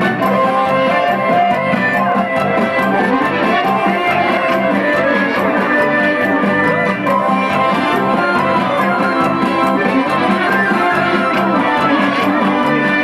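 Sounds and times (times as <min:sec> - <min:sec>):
folk dance music over loudspeakers: 0:00.0 - 0:13.0.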